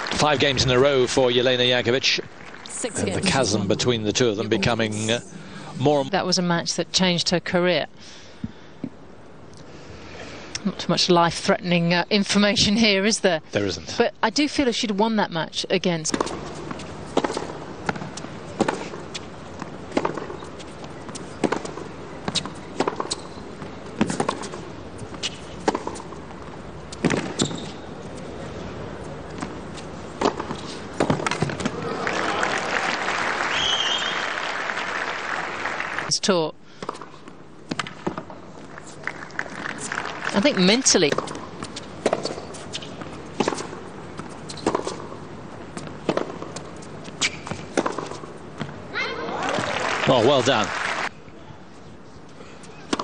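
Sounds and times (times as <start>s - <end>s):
low arena hum: 0.0s - 13.8s, 14.5s - 53.0s
tennis ball struck by rackets: 16.1s - 20.5s, 21.1s - 23.3s, 24.0s - 26.4s, 27.0s - 27.6s, 30.2s - 31.8s, 36.8s - 38.4s, 40.6s - 48.3s
ball bouncing on hard court: 27.0s - 27.8s, 40.6s - 45.1s, 45.8s - 48.8s.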